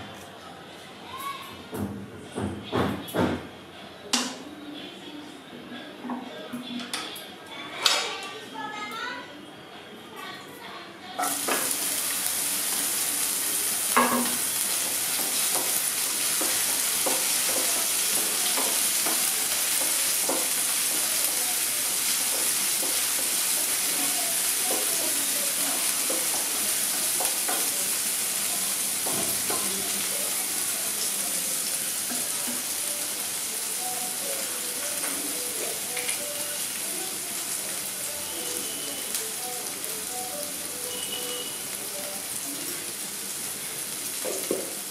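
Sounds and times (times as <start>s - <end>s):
onions sizzling in hot oil: 11.2s - 44.9s
spatula knocking against pan: 15.2s - 21.1s.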